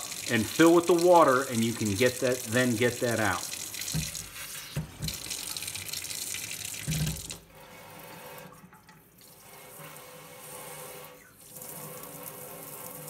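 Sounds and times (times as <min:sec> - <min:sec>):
spray hose water hissing in sink: 0:00.0 - 0:05.8.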